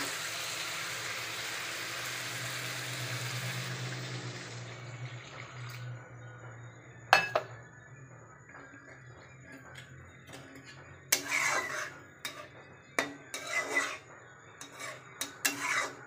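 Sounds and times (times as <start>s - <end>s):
water hissing in hot pan: 0.0s - 5.9s.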